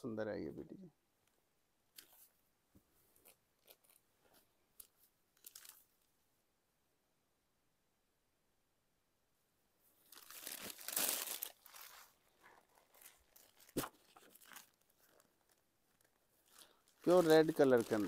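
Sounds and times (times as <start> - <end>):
fabric rustling and crinkling: 1.9 - 6.1, 10.0 - 18.0.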